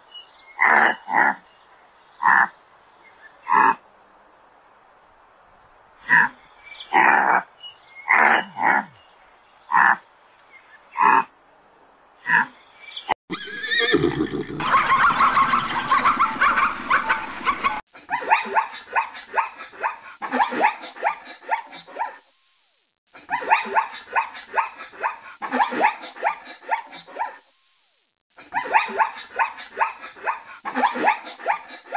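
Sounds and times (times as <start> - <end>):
zebras barking yelps: 18.1 - 22.3, 23.2 - 27.5, 28.4 - 31.9.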